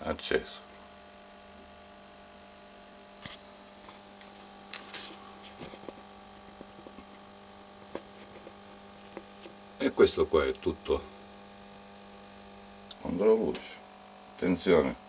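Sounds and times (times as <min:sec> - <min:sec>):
electrical hum: 0:00.0 - 0:15.0
knocks and rustles: 0:03.2 - 0:07.2.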